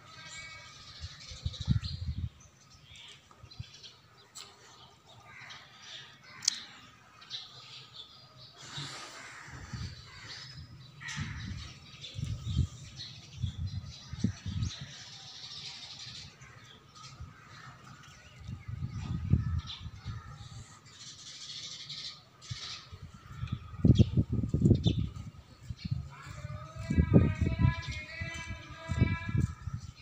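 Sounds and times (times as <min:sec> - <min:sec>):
birds chirping: 0:00.0 - 0:30.0.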